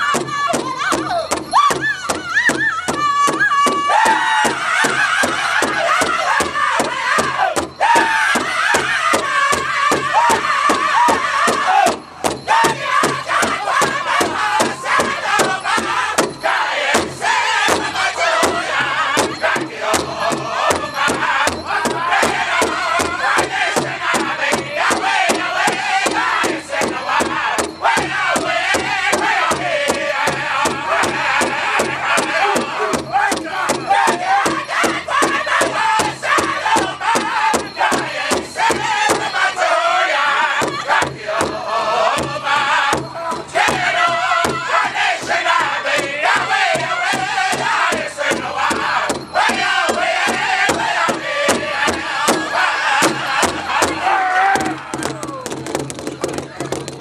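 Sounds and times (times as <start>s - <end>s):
large drum beating: 0.0s - 39.7s, 40.5s - 57.0s
men singing together: 0.0s - 55.4s.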